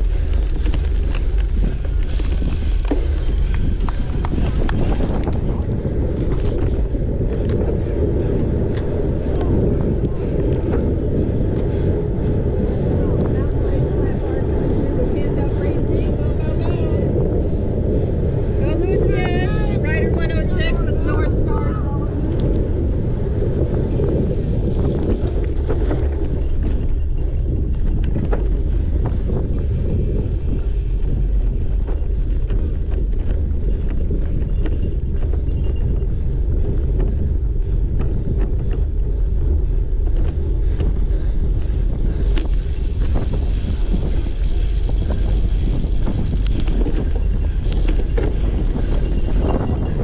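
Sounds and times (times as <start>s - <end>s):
bike clicks and rattles: 0.0s - 16.2s, 22.1s - 50.0s
wind rumble on microphone: 0.0s - 50.0s.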